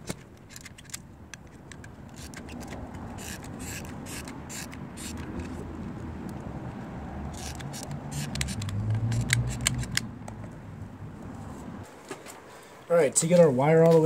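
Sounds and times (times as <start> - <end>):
glue gun clicks: 7.4 - 10.1.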